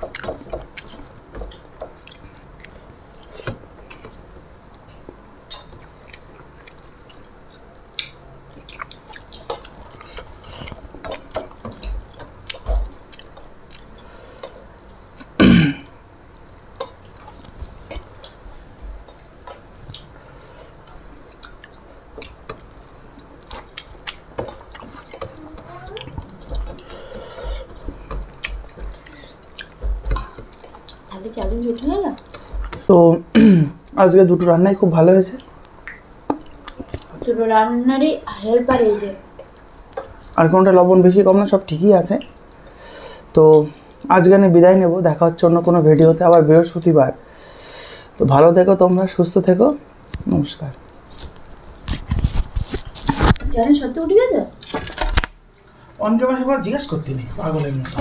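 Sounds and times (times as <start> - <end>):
chewing: 0.0 - 4.2, 4.8 - 15.4, 16.3 - 18.4, 19.0 - 32.9, 35.4 - 37.2.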